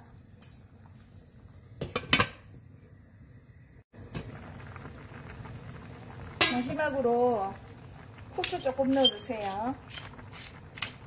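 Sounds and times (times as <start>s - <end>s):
stew bubbling: 4.0s - 11.0s.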